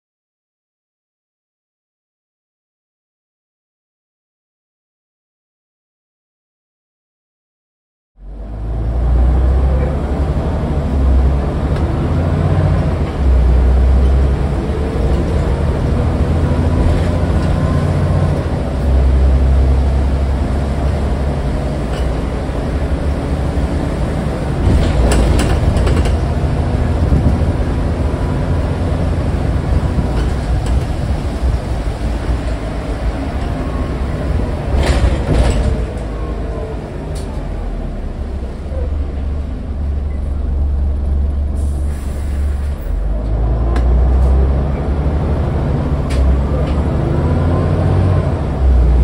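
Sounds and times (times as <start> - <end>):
bus diesel engine running: 8.2 - 49.0
sharp clicks and rattles: 24.7 - 26.4
faint engine whine: 26.1 - 45.0.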